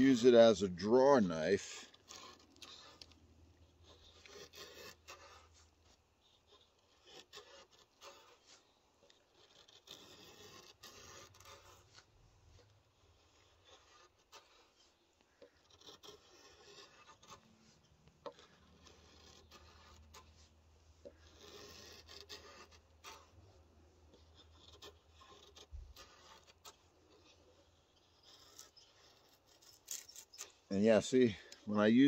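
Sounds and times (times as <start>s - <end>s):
blade scraping and shaving wood: 0.0s - 32.0s.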